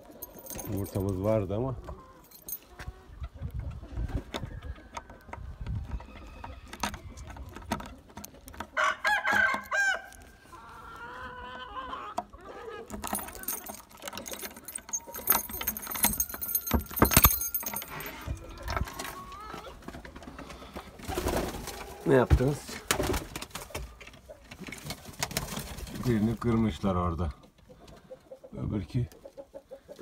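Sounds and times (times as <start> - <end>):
key rattling in a padlock: 0.0 - 1.3, 2.3 - 2.6, 12.9 - 19.0
chickens clucking: 1.1 - 13.4, 18.0 - 30.0
rooster crowing: 8.8 - 10.1.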